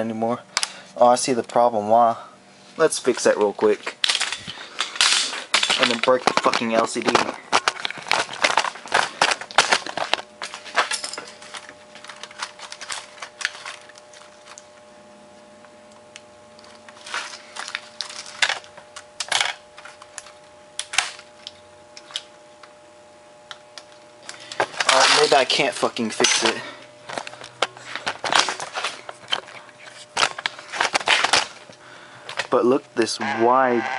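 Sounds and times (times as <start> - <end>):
faint steady hum: 0.0 - 33.9
plastic keys clicking and clattering: 3.8 - 14.6.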